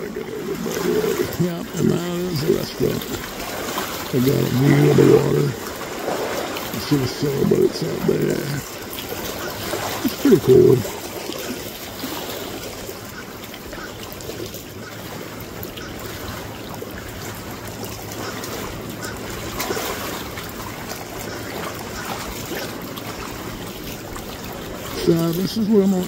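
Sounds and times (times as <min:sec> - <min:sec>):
small waves lapping on shore: 0:00.0 - 0:26.0.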